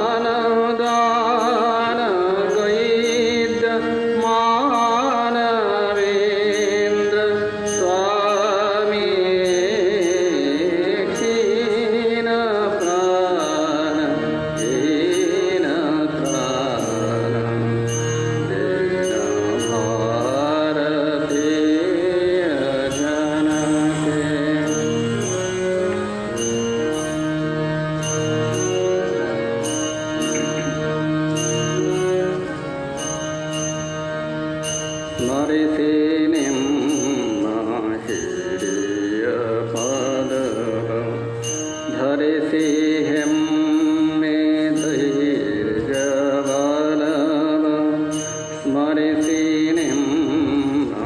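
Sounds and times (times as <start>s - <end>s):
man singing a hymn: 0.0s - 17.8s, 18.4s - 25.3s, 35.2s - 51.0s
harmonium chords: 0.0s - 51.0s
hand cymbals ticking: 0.7s - 51.0s.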